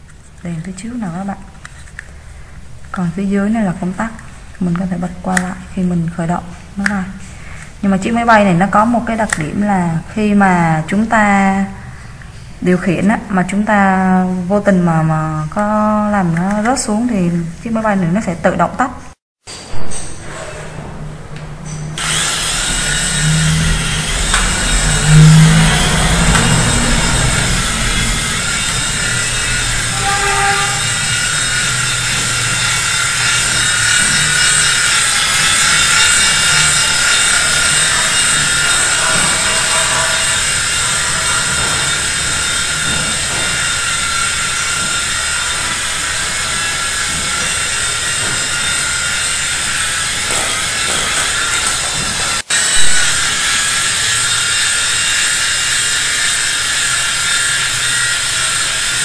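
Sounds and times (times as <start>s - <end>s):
toy helicopter rotors whirring: 22.0s - 59.0s.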